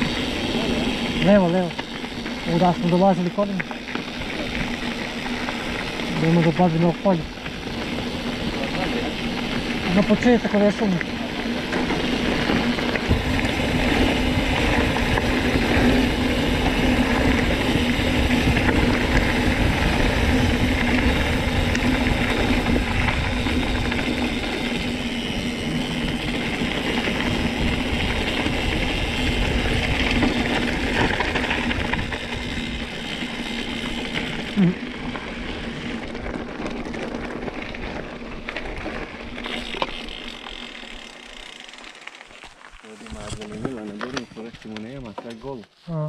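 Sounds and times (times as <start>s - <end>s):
rumbling road noise: 0.0s - 45.4s.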